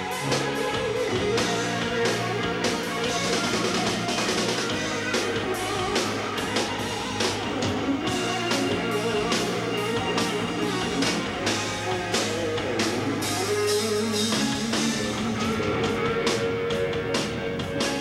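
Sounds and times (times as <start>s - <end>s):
drum kit beat: 0.0s - 18.0s
electric guitar: 0.0s - 18.0s.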